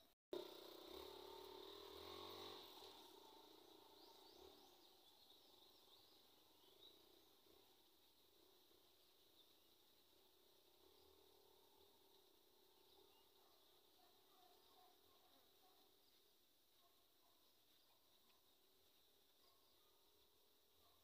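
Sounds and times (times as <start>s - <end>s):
insect drone: 0.4s - 14.3s.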